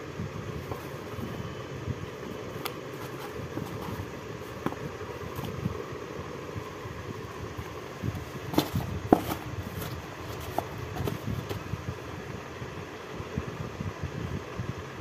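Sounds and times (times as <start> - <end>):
low mechanical hum: 0.0 - 15.0
mangoes knocking and thudding: 2.3 - 5.8, 7.6 - 11.7.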